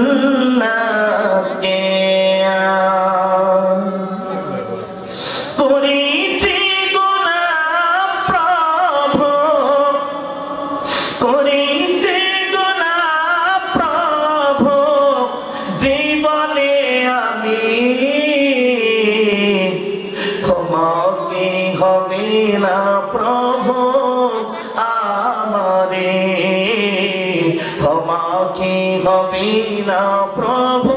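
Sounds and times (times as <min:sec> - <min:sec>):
man chanting: 0:00.0 - 0:30.9.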